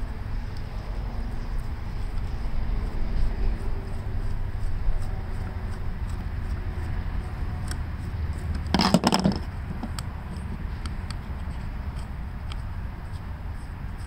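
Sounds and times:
low steady rumble: 0.0s - 14.0s
handling small parts: 7.6s - 13.2s
screwdriver clattering on table: 8.8s - 9.4s.

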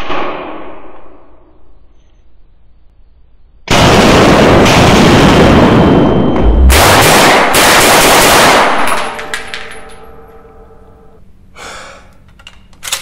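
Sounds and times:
submachine gun full-auto bursts: 6.7s - 8.8s.

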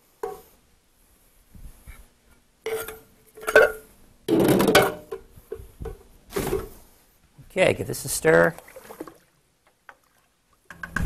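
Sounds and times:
metal cans knocking and clinking: 3.4s - 5.3s.

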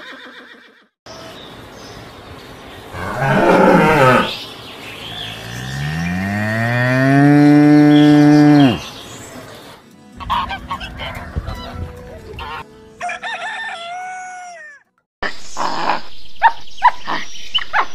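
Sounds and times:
cows mooing: 3.0s - 4.4s, 5.2s - 8.9s.

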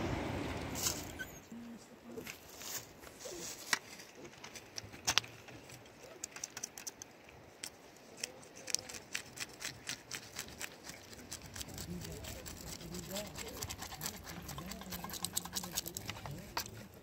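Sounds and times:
knife scraping fish scales: 8.4s - 17.0s.

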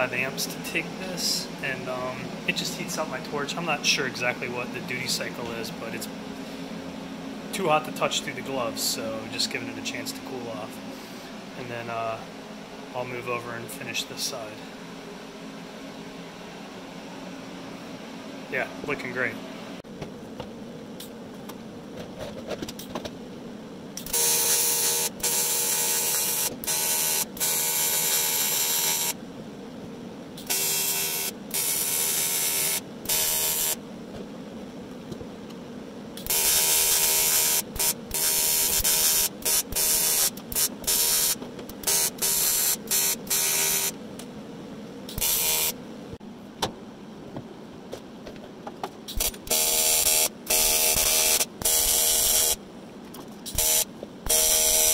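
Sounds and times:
welding arc buzzing: 24.0s - 29.2s, 30.4s - 33.8s, 36.2s - 44.0s, 45.1s - 45.8s, 49.1s - 52.6s, 53.4s - 54.9s.

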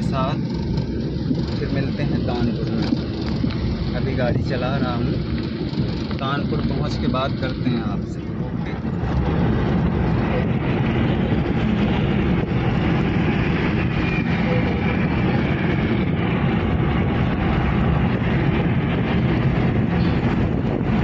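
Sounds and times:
car road and engine noise: 0.0s - 21.0s.

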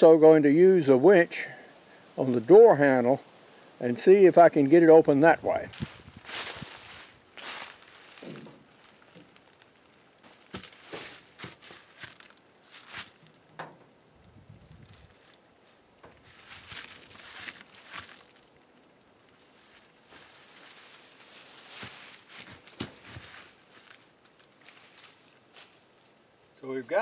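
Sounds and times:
rope rustling and crinkling: 5.7s - 26.2s.

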